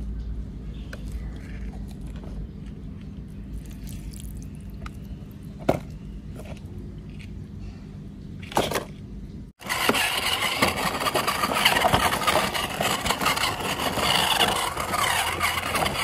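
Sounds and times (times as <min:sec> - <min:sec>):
toy truck crackling over dirt: 0:09.6 - 0:16.0.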